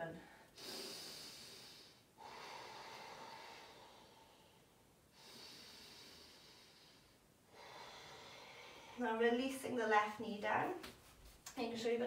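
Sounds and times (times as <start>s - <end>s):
woman breathing slowly: 0.2s - 9.1s.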